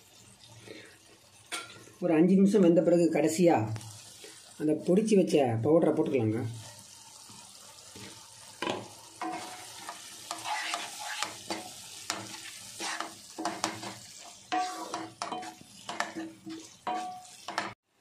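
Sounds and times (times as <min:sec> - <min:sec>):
low sizzle of cooking: 0:00.0 - 0:18.0
spatula scraping a pan: 0:09.2 - 0:17.8.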